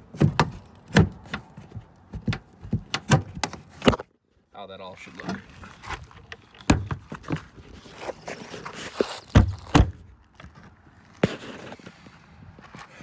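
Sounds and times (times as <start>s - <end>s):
footsteps on gravel: 5.4s - 13.0s.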